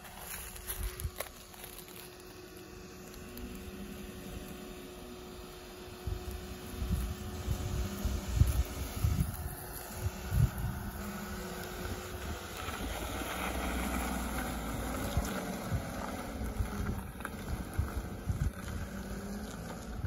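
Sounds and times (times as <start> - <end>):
small car engine running: 0.0 - 20.0
wind buffeting microphone: 6.0 - 20.0.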